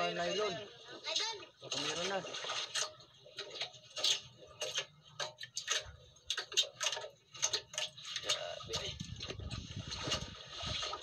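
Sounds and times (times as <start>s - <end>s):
water slapping around a camera: 1.0s - 11.0s.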